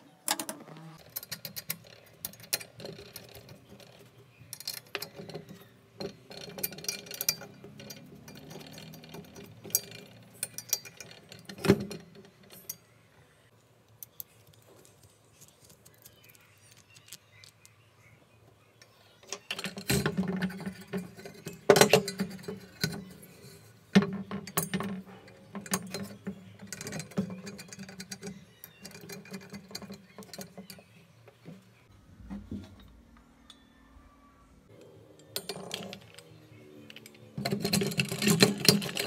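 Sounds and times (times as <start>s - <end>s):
metal parts clinking and rattling: 0.3s - 13.0s, 19.3s - 31.5s, 35.2s - 39.0s.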